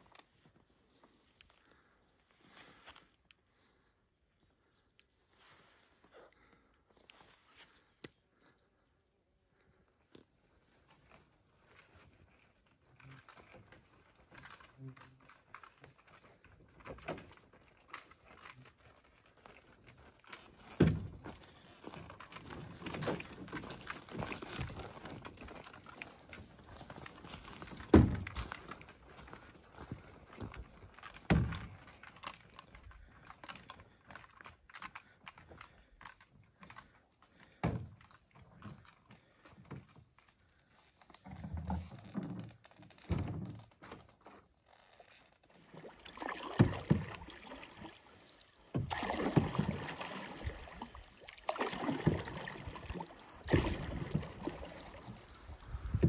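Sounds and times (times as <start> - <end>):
paddle strokes in water: 10.6 - 42.4, 45.0 - 56.0
footsteps on trail: 15.3 - 37.6
canoe thumping: 20.3 - 32.6, 36.0 - 38.8, 41.2 - 44.0, 45.8 - 47.8, 48.7 - 56.0.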